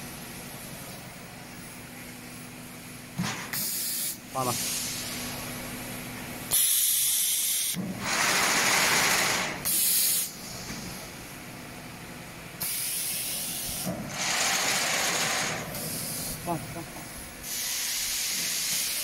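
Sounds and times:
compressed air hissing: 0:03.4 - 0:05.4, 0:06.5 - 0:11.2, 0:12.6 - 0:19.0
steady machine hum: 0:04.1 - 0:06.6, 0:07.7 - 0:19.0.

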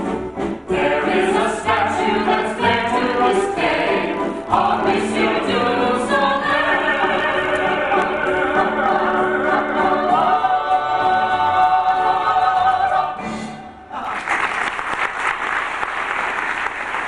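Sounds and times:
cast singing with music: 0:00.0 - 0:13.9
audience applauding: 0:14.0 - 0:17.0.

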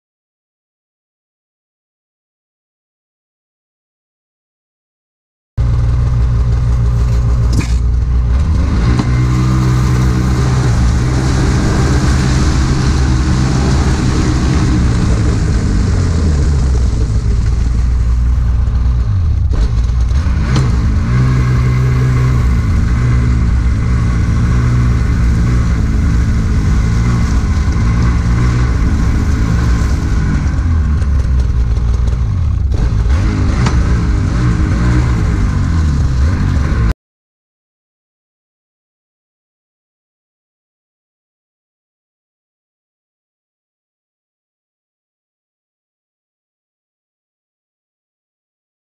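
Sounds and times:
snowmobile engine running hard: 0:05.6 - 0:36.9
track turning over ice and snow: 0:05.6 - 0:36.9.

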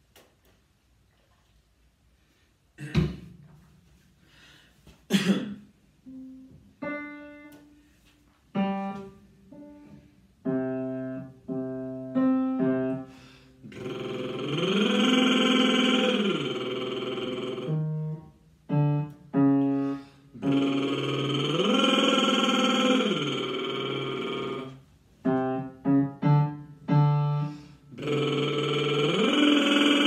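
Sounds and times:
person coughing: 0:02.8 - 0:03.3, 0:05.1 - 0:05.7
person singing vocal glide: 0:13.0 - 0:18.2, 0:19.8 - 0:24.8, 0:27.4 - 0:30.0.

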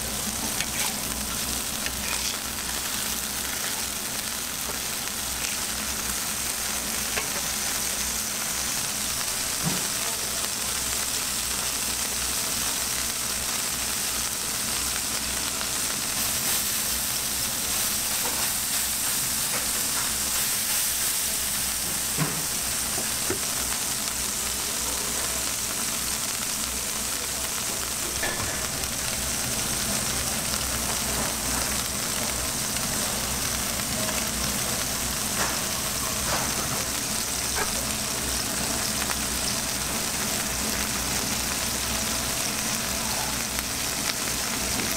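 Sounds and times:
burger patties sizzling on griddle: 0:00.0 - 0:44.9.

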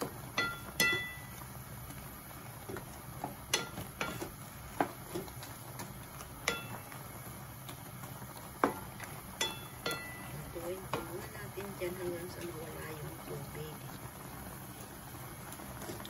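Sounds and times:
wooden spatula knocking a pan: 0:00.0 - 0:01.4, 0:02.6 - 0:06.9, 0:08.5 - 0:11.4
frying pan ringing: 0:00.0 - 0:14.6
low steady hum: 0:00.0 - 0:16.0
sauce simmering: 0:00.0 - 0:16.0.

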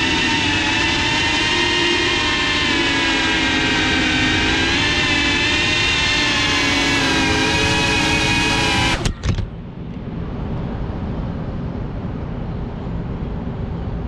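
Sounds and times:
drone propellers whining: 0:00.0 - 0:09.7
low steady rumble: 0:00.0 - 0:14.0.

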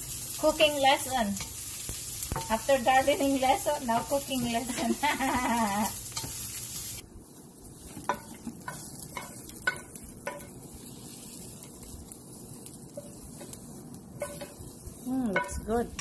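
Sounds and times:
faint sizzle: 0:00.0 - 0:16.0
spatula knocking on frying pan: 0:08.0 - 0:10.5, 0:14.2 - 0:14.6, 0:15.3 - 0:15.7.

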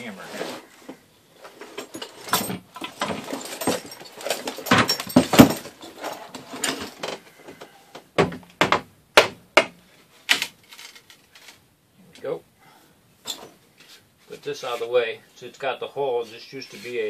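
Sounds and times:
clattering on wooden slats: 0:01.4 - 0:11.6.

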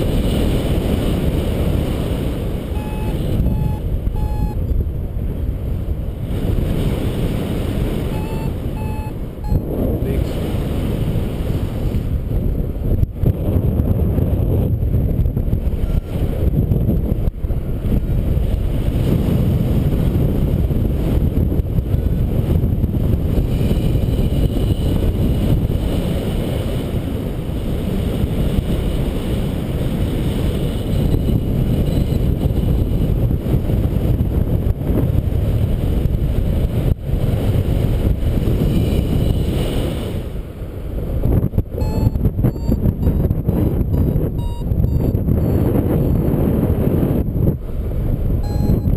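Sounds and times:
wind buffeting microphone: 0:00.0 - 0:48.9.

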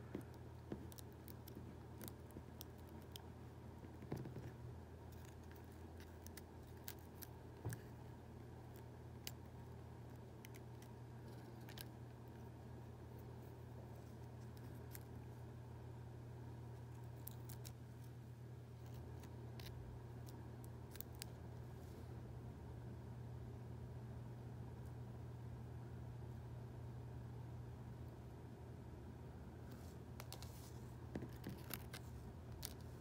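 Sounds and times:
dry seed pod crackling: 0:00.1 - 0:03.4, 0:05.1 - 0:07.9, 0:17.0 - 0:17.8.

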